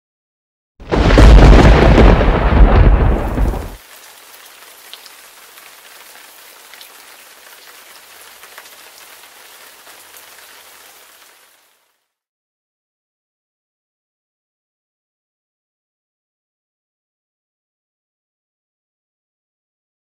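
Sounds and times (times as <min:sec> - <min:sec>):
thunderclap: 0:00.8 - 0:03.8
rain hissing: 0:00.9 - 0:12.1.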